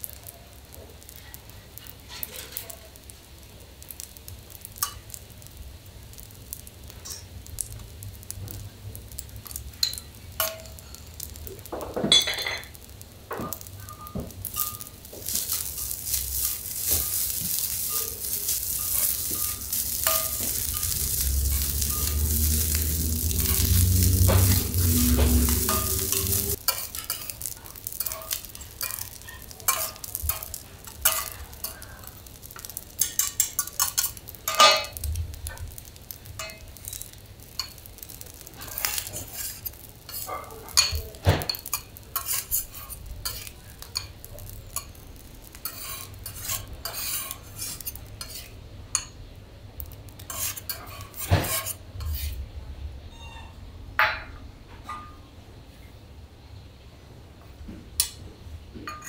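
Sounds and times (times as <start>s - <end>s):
loud sizzle: 0.0s - 59.0s
metal spatulas scraping griddle: 2.1s - 2.7s, 13.6s - 32.0s, 36.4s - 44.1s, 45.5s - 48.6s, 50.2s - 52.4s.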